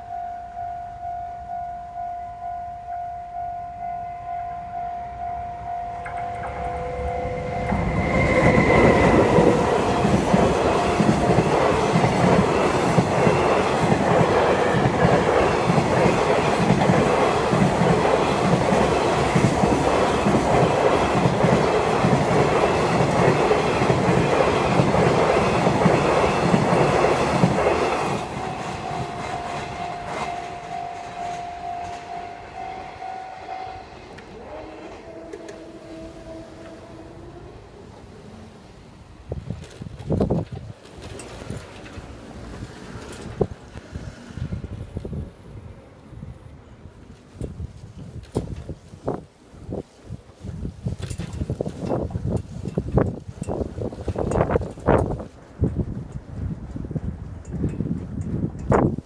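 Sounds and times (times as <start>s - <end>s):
level-crossing bell ringing: 0.0s - 11.6s, 27.8s - 34.2s
train passing: 0.0s - 59.0s.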